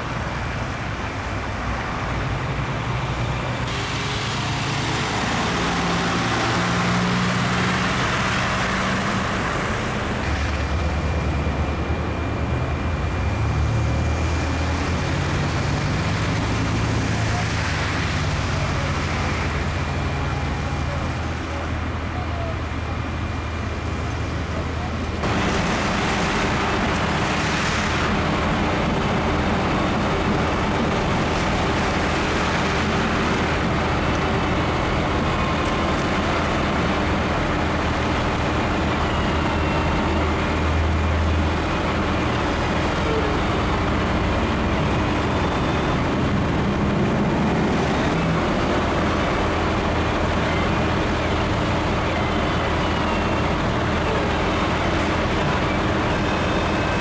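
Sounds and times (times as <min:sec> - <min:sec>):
heavy engine idling: 0:00.0 - 0:57.0
highway traffic: 0:00.0 - 0:57.0.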